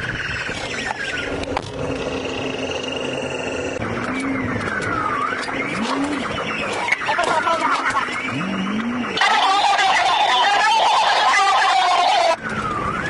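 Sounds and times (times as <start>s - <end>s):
car engine and road noise: 0.0s - 13.0s
high pulsing siren tone: 0.0s - 13.0s
police siren wailing: 0.4s - 13.0s.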